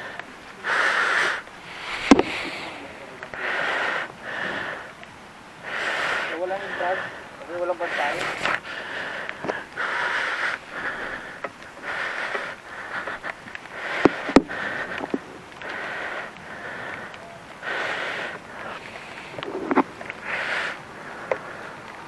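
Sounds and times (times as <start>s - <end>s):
person breathing: 0.0s - 5.0s, 5.6s - 22.0s.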